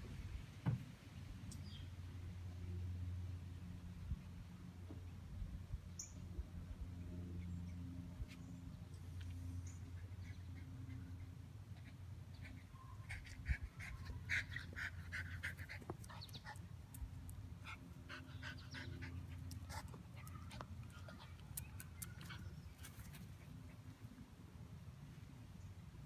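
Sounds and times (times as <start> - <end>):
dogs yipping and whining: 9.8 - 16.4.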